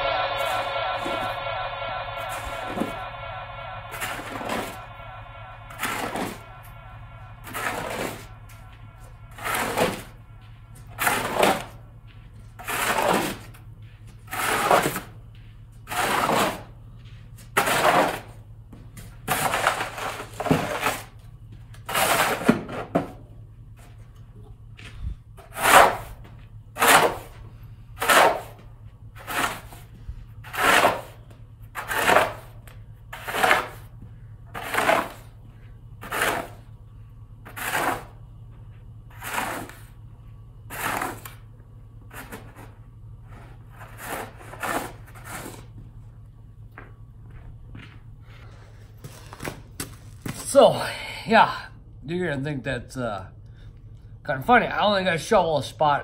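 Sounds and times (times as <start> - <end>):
snow shovel scraping pavement: 9.3 - 11.8, 12.6 - 13.6, 14.2 - 15.2, 15.9 - 16.7, 17.5 - 18.4, 19.3 - 21.2, 21.8 - 22.9, 25.4 - 26.2, 26.8 - 27.4, 28.0 - 28.6, 29.2 - 31.2, 31.8 - 35.4, 36.0 - 36.7, 37.4 - 38.2, 39.1 - 40.0, 40.7 - 41.4, 42.1 - 45.7.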